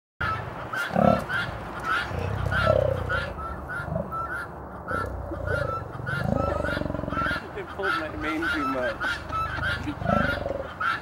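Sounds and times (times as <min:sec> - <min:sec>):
lion grunting: 0:02.0 - 0:04.2, 0:04.9 - 0:07.5, 0:09.5 - 0:10.7.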